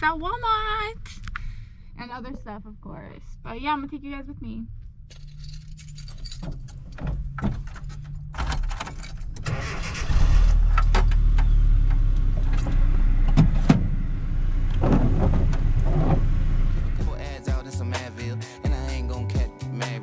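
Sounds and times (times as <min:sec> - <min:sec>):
pickup engine rumble: 0:04.2 - 0:19.4
clicks and rattles of shifter: 0:05.1 - 0:09.8.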